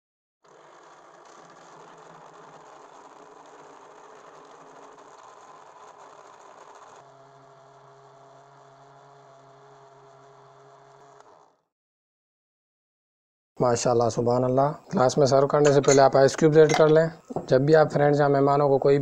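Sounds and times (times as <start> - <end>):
electric blender whirring: 0.5 - 11.6.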